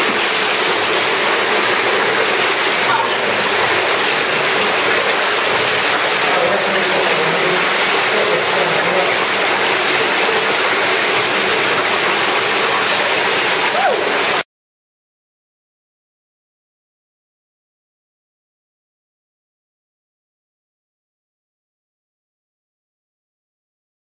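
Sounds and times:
water rushing over rock: 0.0s - 14.4s.

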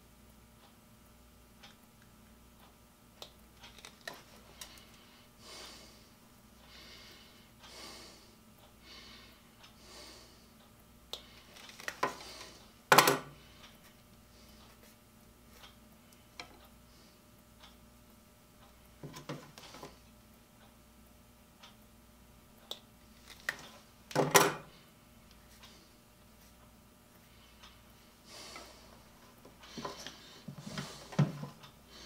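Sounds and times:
wires being handled: 3.6s - 5.0s, 11.1s - 13.2s, 23.1s - 24.6s
soft breaths: 4.2s - 17.7s, 24.7s - 32.0s.

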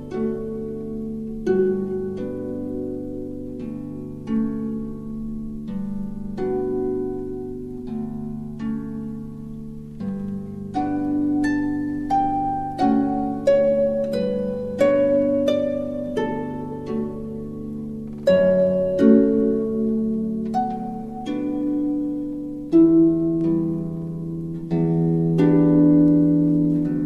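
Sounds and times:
plucked string melody: 0.0s - 27.0s.

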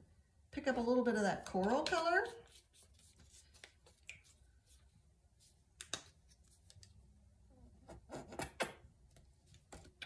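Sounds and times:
paintbrush scraping: 1.6s - 5.6s.

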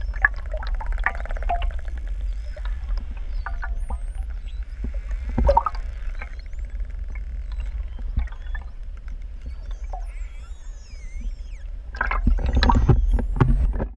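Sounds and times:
low underwater rumble: 0.0s - 13.9s
dolphin whistles: 2.2s - 6.8s, 7.4s - 8.8s, 9.4s - 13.8s.

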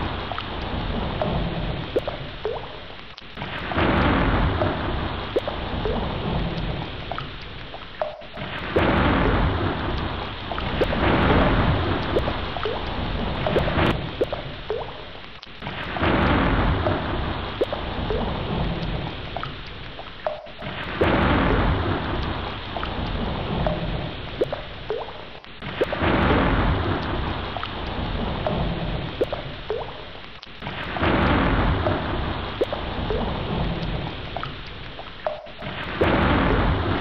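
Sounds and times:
heavy rain: 0.0s - 37.0s
low thunder rumble: 3.4s - 7.2s, 8.4s - 14.7s, 15.9s - 19.4s, 20.6s - 24.8s, 25.7s - 29.9s, 31.0s - 34.4s, 35.6s - 37.0s.

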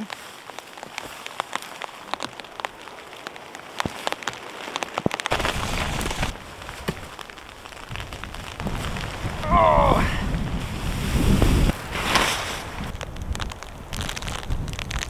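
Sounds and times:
raindrops ticking: 0.0s - 11.0s, 12.6s - 15.0s
tarp billowing: 0.0s - 15.0s
wind gust on microphone: 7.9s - 15.0s.

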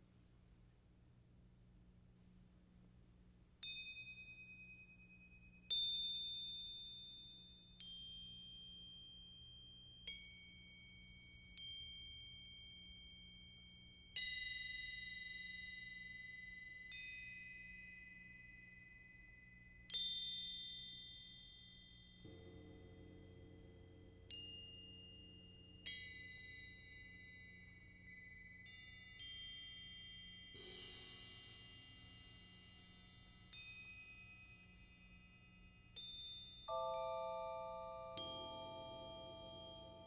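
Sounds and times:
bell-like metal percussion notes: 7.8s - 40.0s.

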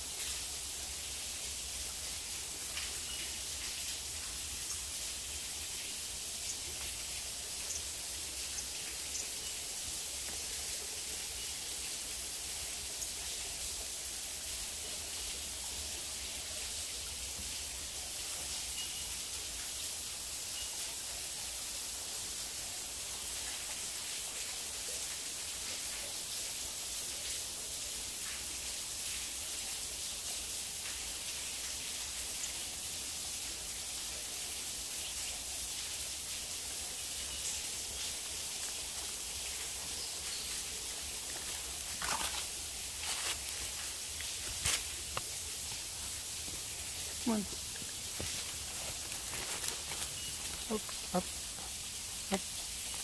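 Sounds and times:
steady high hiss: 0.0s - 53.0s
bird chirps: 50.0s - 51.2s.

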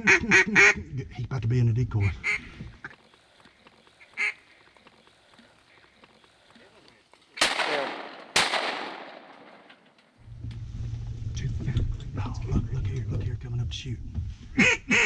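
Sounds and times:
duck quack: 0.0s - 0.8s, 2.0s - 2.6s, 4.0s - 4.4s, 14.6s - 15.0s
shotgun shots echoing: 7.4s - 9.9s.

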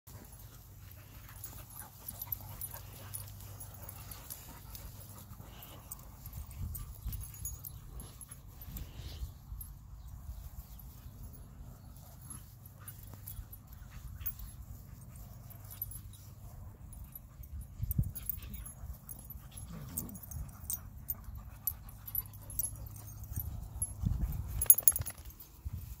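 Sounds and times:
dogs panting: 0.1s - 25.0s
dogs whimpering: 18.2s - 23.4s.

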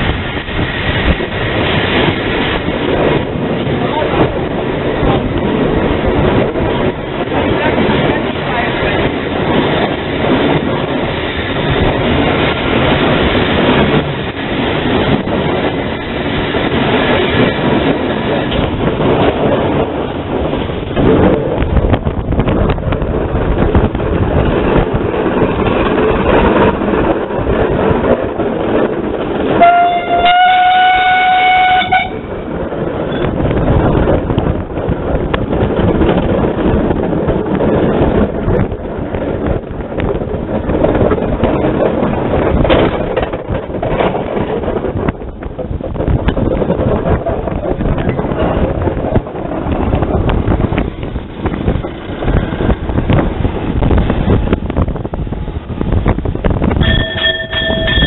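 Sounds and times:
rail clatter: 0.0s - 58.0s
steam locomotive running noise: 0.0s - 58.0s
steam whistle blast: 29.6s - 32.2s.

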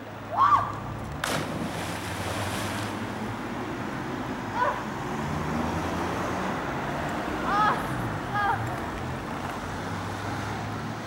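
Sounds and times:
person splashing into water: 1.2s - 3.2s
water churning: 1.2s - 3.7s.

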